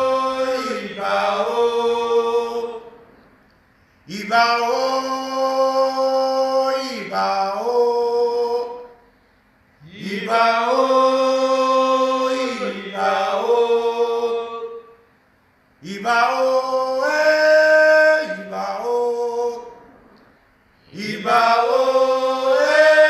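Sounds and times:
man chanting: 4.1 - 9.0, 15.8 - 19.8.

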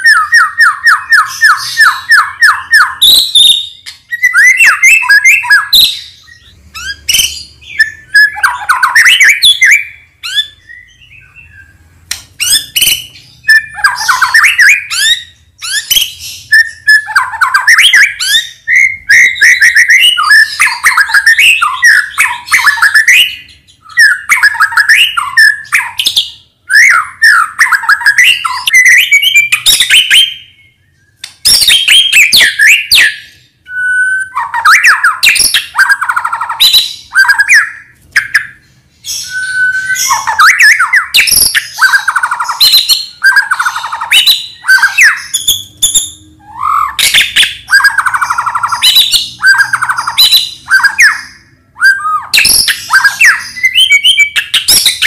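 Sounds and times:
bird singing whistled phrases: 0.0 - 11.8, 12.4 - 55.0.

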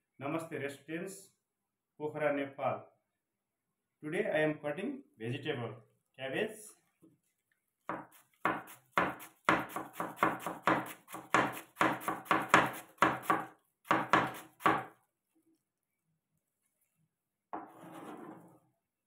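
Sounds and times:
knife chopping cabbage on board: 7.9 - 14.9.

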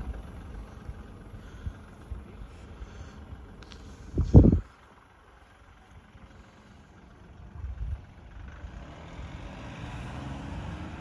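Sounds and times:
faint suv engine rumble: 0.0 - 11.0.

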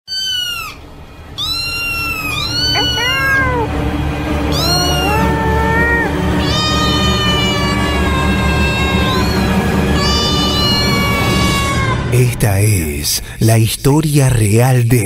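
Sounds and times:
cat meowing: 0.1 - 0.8, 1.4 - 3.7, 4.5 - 12.0
low dark music: 0.8 - 14.5.

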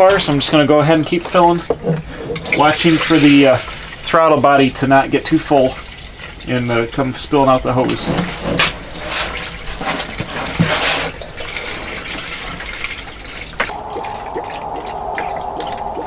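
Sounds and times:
steady tone: 13.7 - 16.0.

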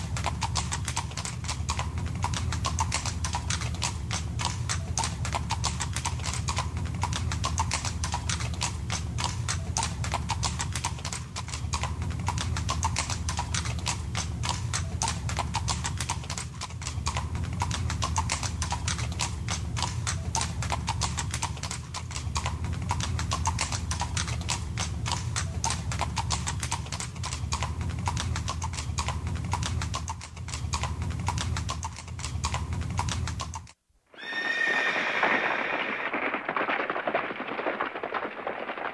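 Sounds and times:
horse hooves clip-clopping: 0.0 - 38.9.

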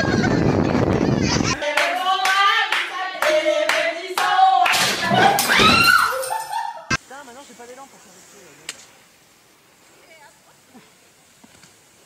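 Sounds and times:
hand claps: 1.7 - 5.5.

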